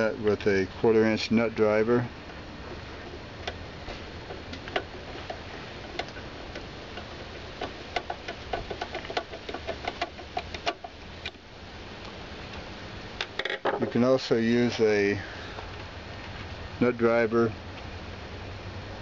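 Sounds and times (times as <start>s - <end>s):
nut driver clicking: 4.5s - 11.4s.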